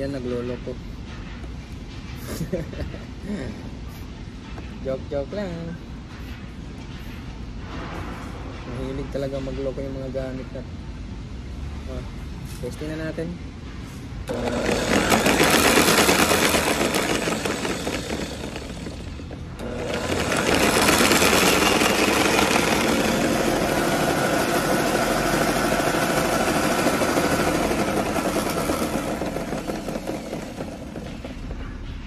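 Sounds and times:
floor polisher motor running: 0:14.3 - 0:31.6.

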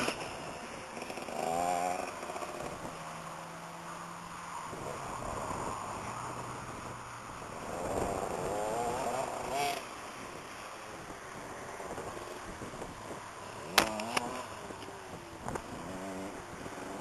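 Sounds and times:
motocross engine revving: 0:00.0 - 0:02.9, 0:07.6 - 0:09.9, 0:13.6 - 0:14.6, 0:15.6 - 0:17.0.

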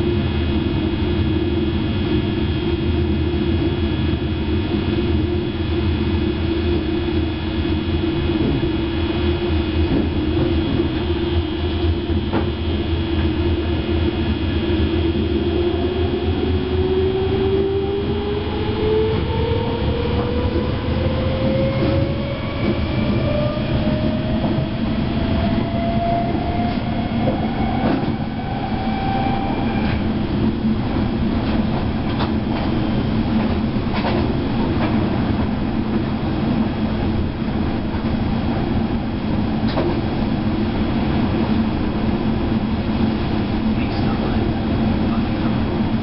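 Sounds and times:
wheels rumbling on rails: 0:00.0 - 0:46.0
electric train motor whine: 0:00.6 - 0:31.2.

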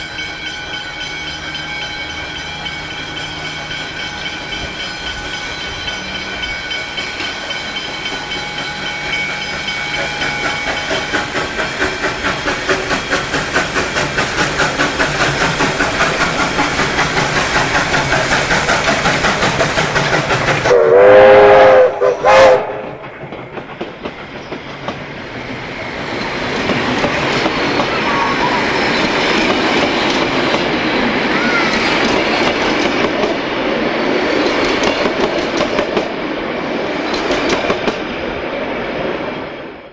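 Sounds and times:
steam locomotive exhaust beating: 0:00.0 - 0:38.4
train wheels clicking over rail joints: 0:00.1 - 0:38.4
steam whistle: 0:20.6 - 0:23.0, 0:27.9 - 0:28.9.

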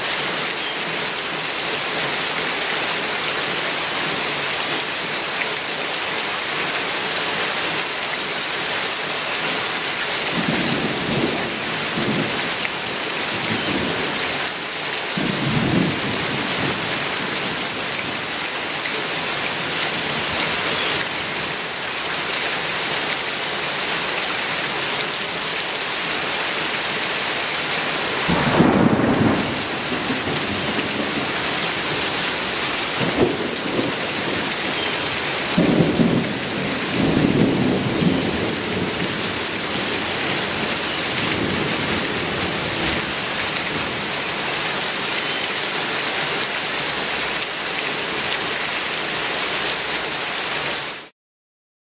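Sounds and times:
heavy rain pouring: 0:00.0 - 0:51.1
low thunder rumbles: 0:28.0 - 0:34.7, 0:35.5 - 0:40.6.

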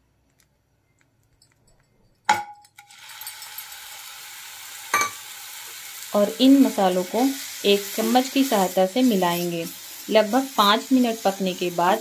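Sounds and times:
paste sizzling in hot oil: 0:02.8 - 0:12.0.

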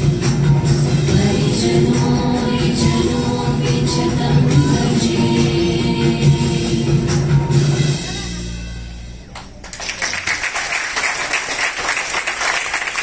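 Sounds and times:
dance music: 0:00.0 - 0:09.0
audience applause: 0:09.4 - 0:13.0.

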